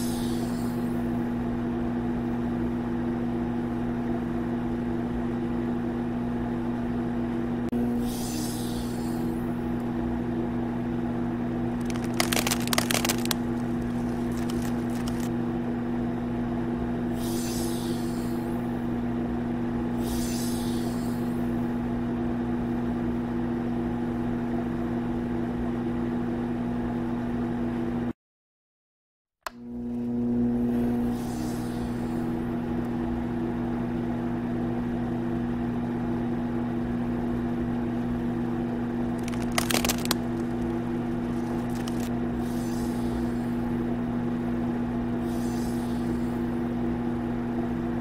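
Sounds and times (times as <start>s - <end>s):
short hissing bursts: 0.0s - 0.9s, 17.2s - 18.5s, 45.3s - 46.3s
machine hum: 7.8s - 22.0s, 37.9s - 48.0s
blocks clattering and tumbling: 11.8s - 15.3s, 39.2s - 42.1s.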